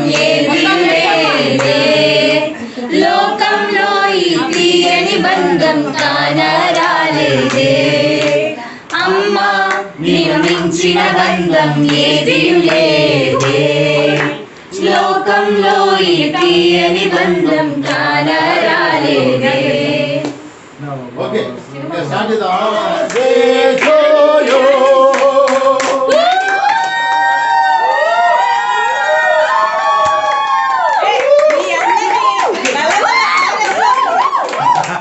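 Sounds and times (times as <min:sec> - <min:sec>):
voices singing unaccompanied: 0:00.0 - 0:20.8, 0:21.4 - 0:26.4.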